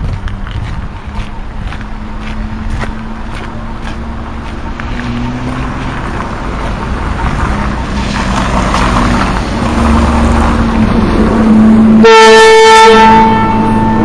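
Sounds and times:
electric train rumbling past: 0.0 - 14.0
train air horn blast: 11.9 - 14.0.

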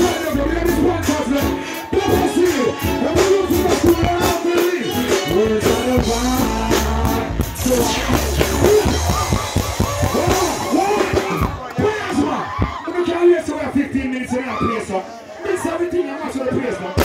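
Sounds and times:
man singing into microphone: 0.0 - 9.4
live reggae band: 0.0 - 17.0.

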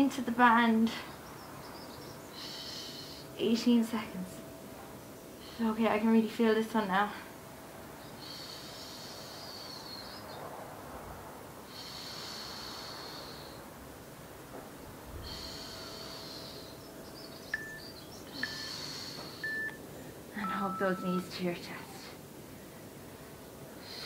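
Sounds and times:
woman breathing hard: 2.3 - 3.4, 8.1 - 10.1, 11.6 - 13.8, 15.1 - 16.9, 18.3 - 20.3
short high chirps: 17.6 - 18.6, 19.4 - 19.8.

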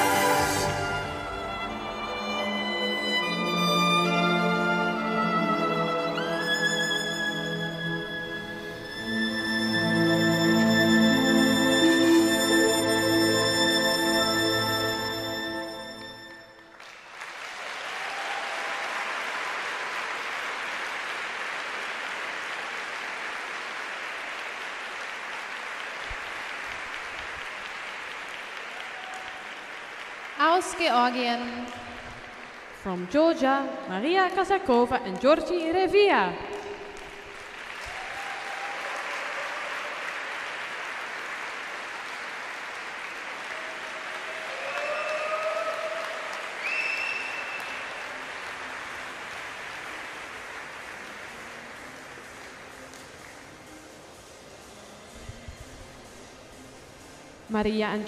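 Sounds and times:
audience applauding: 15.3 - 33.2, 36.5 - 53.8.

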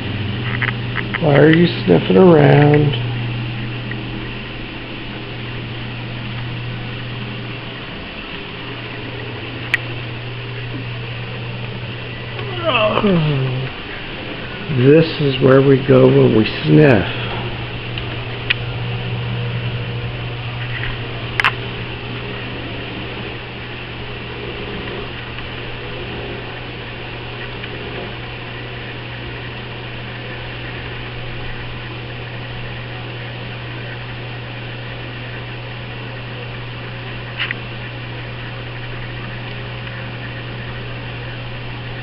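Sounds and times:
low mechanical hum: 0.0 - 42.0.

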